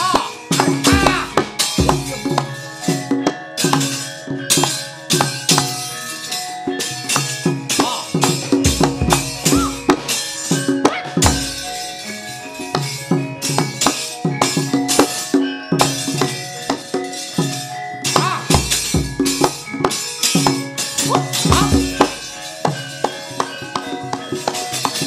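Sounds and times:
drum strokes: 0.0s - 4.0s, 7.0s - 12.1s, 12.7s - 23.5s
ringing metallophone notes: 0.0s - 25.0s.

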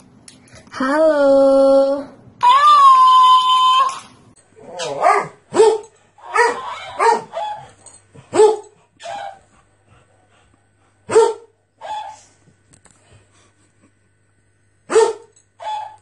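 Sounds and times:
dog barking: 5.0s - 7.6s, 8.3s - 9.3s, 11.1s - 12.2s, 14.9s - 16.0s.

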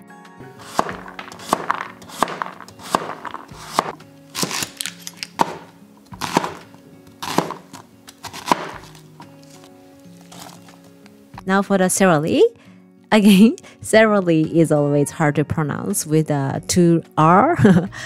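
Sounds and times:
background music: 0.0s - 18.0s
knife chopping on cutting board: 0.6s - 9.6s.

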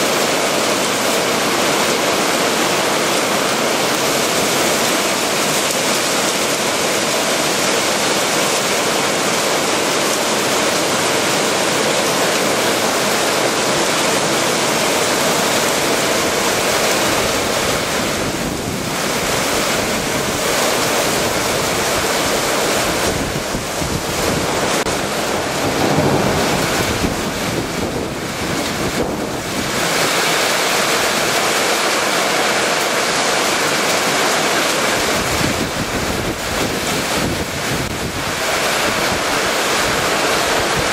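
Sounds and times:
torrential rain: 0.0s - 40.9s
wind buffeting microphone: 15.4s - 30.5s, 34.9s - 40.9s.

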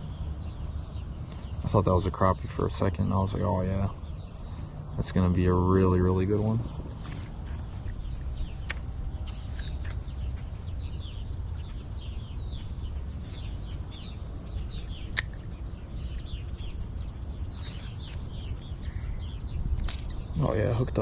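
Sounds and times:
small birds chirping: 0.0s - 21.0s
steady low rumble: 0.0s - 21.0s
sharp clicks: 7.8s - 10.0s, 14.8s - 16.4s.

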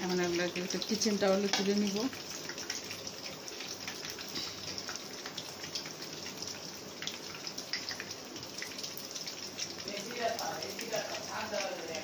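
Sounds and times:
oil sizzling in a pan: 0.0s - 12.0s.

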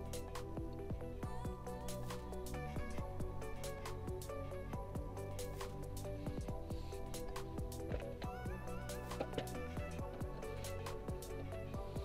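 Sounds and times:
electronic music: 0.0s - 12.0s
kick drum beat: 0.6s - 1.6s, 4.1s - 5.2s, 6.2s - 6.9s, 7.5s - 8.7s, 9.8s - 10.4s, 11.1s - 12.0s.

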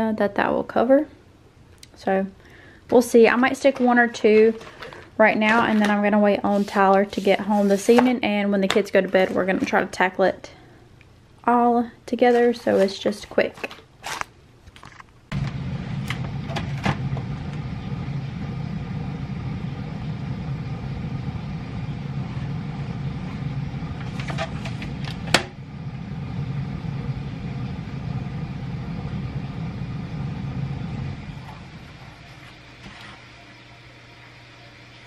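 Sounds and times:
low motor hum: 15.3s - 34.5s.

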